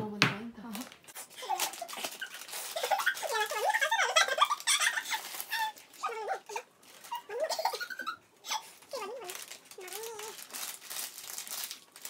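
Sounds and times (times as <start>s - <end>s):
women talking: 0.0s - 1.0s
plastic snack packet crinkling: 0.7s - 12.0s.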